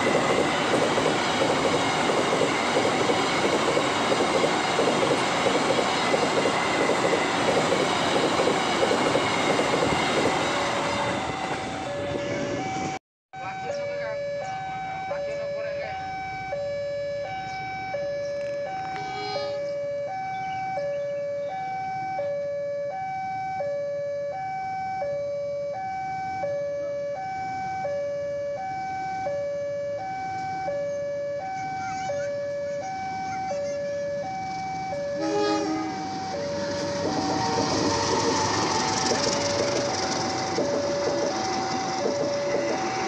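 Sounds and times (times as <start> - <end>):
diesel locomotive passing: 0.0 - 19.9, 30.0 - 43.0
level crossing two-tone alarm: 0.0 - 43.0.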